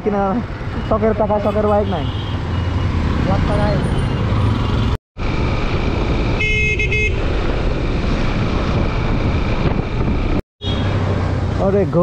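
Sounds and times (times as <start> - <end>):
wind noise: 5.2 - 10.4
motorcycle horn: 6.4 - 7.2, 10.6 - 10.9.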